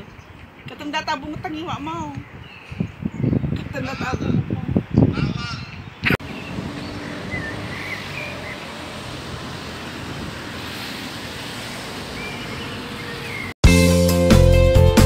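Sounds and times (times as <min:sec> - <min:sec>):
wind noise on microphone: 0:00.0 - 0:10.8
bird chirps: 0:05.0 - 0:08.8, 0:12.1 - 0:13.6.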